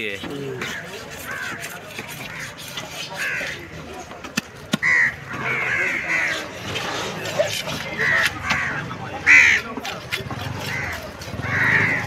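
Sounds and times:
knife scraping fish scales: 0.0s - 3.7s, 6.1s - 8.4s, 9.6s - 12.0s
crows cawing: 0.6s - 3.6s, 4.8s - 6.6s, 8.0s - 9.6s, 10.6s - 12.0s.

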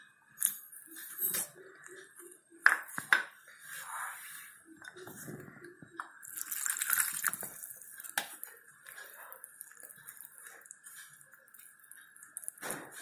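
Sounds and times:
spoon stirring wet crumbs: 6.0s - 12.7s
milk pouring into glass bowl: 6.2s - 12.6s.

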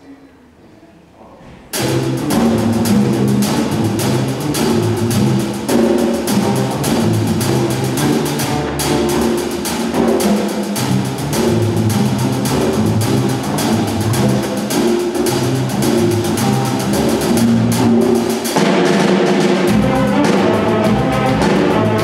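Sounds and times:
drum kit beat: 1.7s - 22.0s
saxophones and brass: 10.8s - 22.0s.

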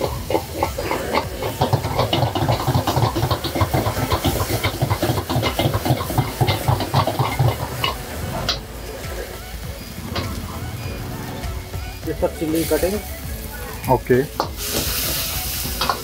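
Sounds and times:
metal ladle scraping a wok: 0.0s - 9.5s
flame roaring: 0.0s - 12.0s
food sizzling: 0.0s - 16.0s.

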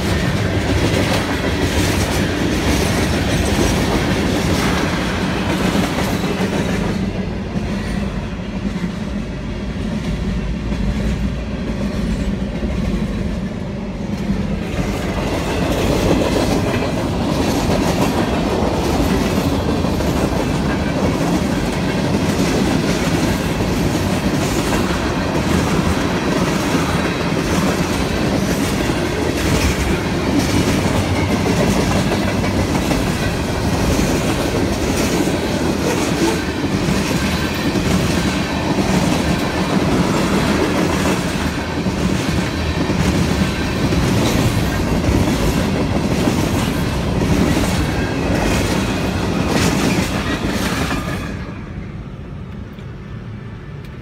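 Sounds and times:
train wheels rumbling on rail: 0.0s - 54.0s
wheels clacking over rail joints: 14.2s - 51.3s.

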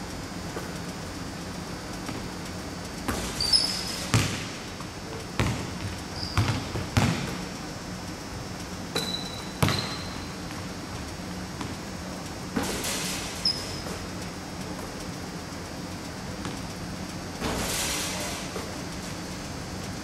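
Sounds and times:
sneakers squeaking: 2.0s - 2.4s, 3.1s - 7.6s, 8.9s - 11.9s, 12.6s - 14.2s, 16.4s - 16.7s
basketball bouncing on wood floor: 3.1s - 4.6s, 5.4s - 7.5s, 8.9s - 10.6s, 11.6s - 11.8s.

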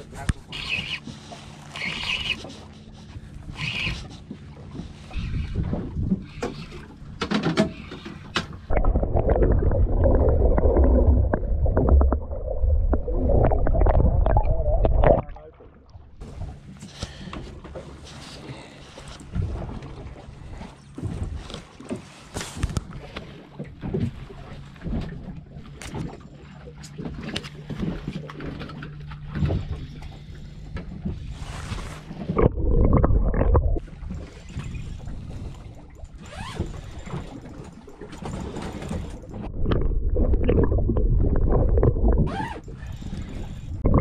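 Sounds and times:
loud low rumbling: 8.7s - 16.2s.

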